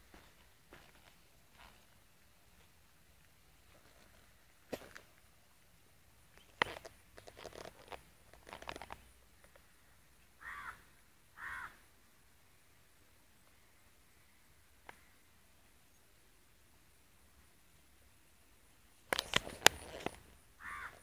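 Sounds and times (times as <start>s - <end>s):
clicks and rustling: 6.4s - 9.6s, 19.1s - 20.3s
crow cawing: 10.4s - 11.8s, 20.6s - 21.0s.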